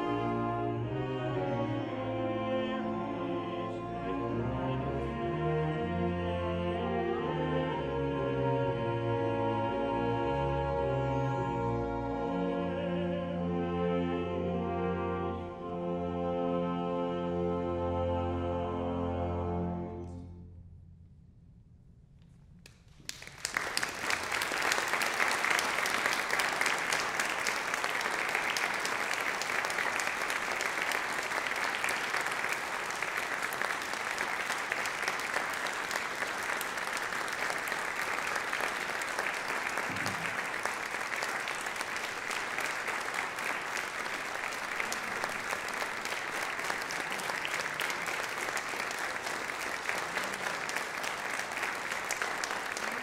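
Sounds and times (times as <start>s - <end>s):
audience applauding: 22.7s - 53.0s.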